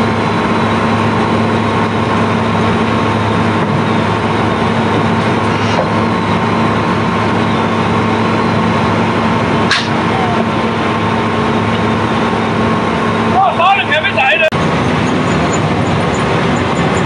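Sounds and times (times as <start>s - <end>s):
unloading machinery drone: 0.1s - 13.4s
sharp clack: 9.7s - 10.0s.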